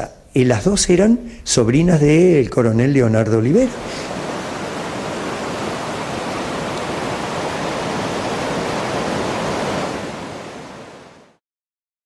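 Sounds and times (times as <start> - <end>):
ocean surf breaking: 3.5 - 11.4.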